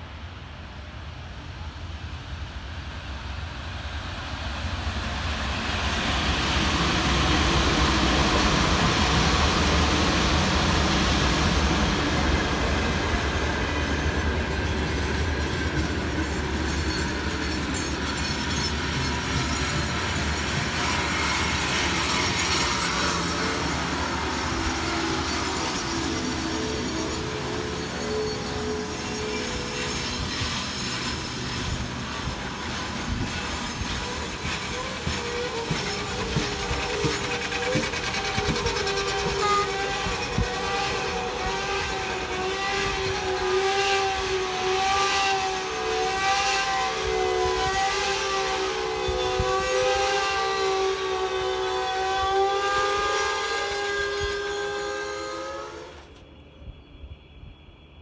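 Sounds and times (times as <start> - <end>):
wheel squeal: 14.6 - 43.5
wheels clicking over rail joints: 33.0 - 40.8.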